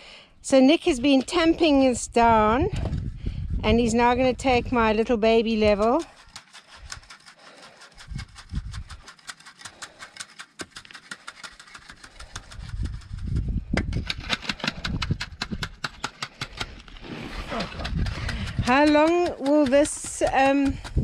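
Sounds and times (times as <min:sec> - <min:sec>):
low rumbling: 0:01.4 - 0:05.8.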